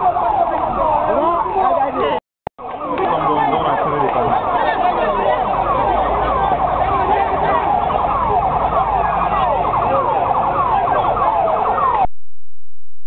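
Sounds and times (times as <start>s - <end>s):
siren in rapid falling sweeps: 2.7s - 12.1s.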